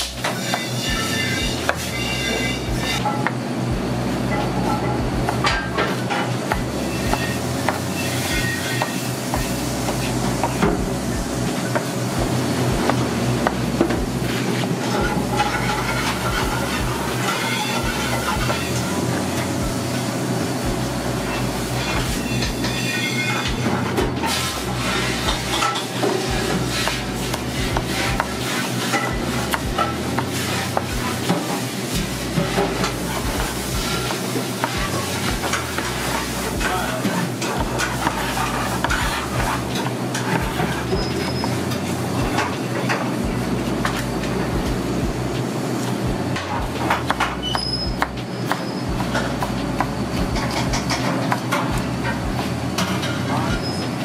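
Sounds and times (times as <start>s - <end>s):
frying sizzle: 0.0s - 54.0s
steady low rumble: 3.6s - 5.9s, 9.4s - 14.4s, 15.0s - 17.2s, 17.8s - 22.7s, 26.3s - 28.5s, 43.2s - 45.4s, 46.0s - 48.3s, 51.7s - 53.1s.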